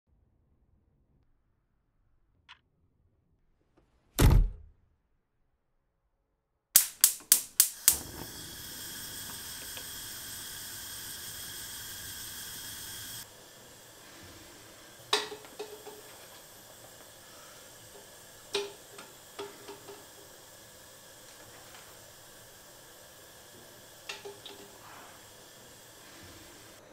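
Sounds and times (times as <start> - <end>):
heavy thud: 4.2 - 4.7
gas igniter clicks: 6.8 - 13.2, 14.9 - 22.6, 23.9 - 25.2
gas flame hissing: 6.8 - 26.9
eggs clinking in metal saucepan: 15.0 - 17.0, 17.9 - 20.4, 24.0 - 24.8.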